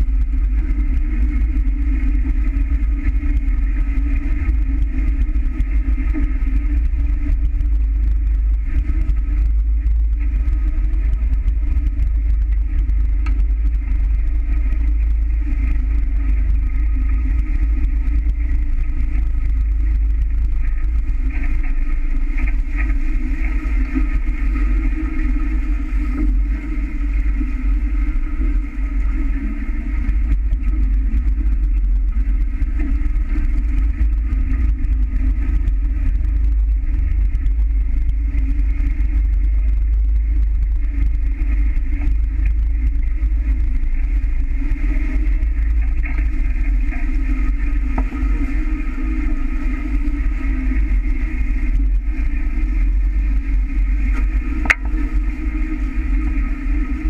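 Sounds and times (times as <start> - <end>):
steady hum: 0.0 - 57.0
water rushing along hulls: 0.0 - 57.0.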